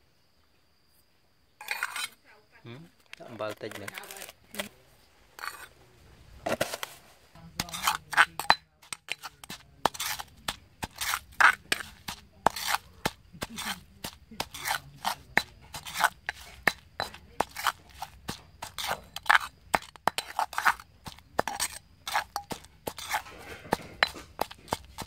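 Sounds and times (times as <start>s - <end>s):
metal spoon scraping stone: 1.6s - 2.2s, 3.5s - 4.7s, 5.4s - 5.8s, 6.5s - 25.0s
stone pestle pounding in mortar: 7.6s - 25.0s.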